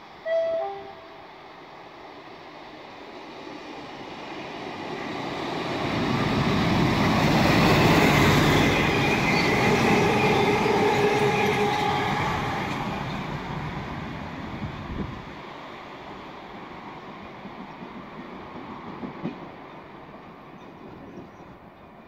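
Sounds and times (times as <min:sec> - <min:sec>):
diesel locomotive rumbling past: 0:03.4 - 0:21.3
locomotive whine: 0:06.3 - 0:14.7.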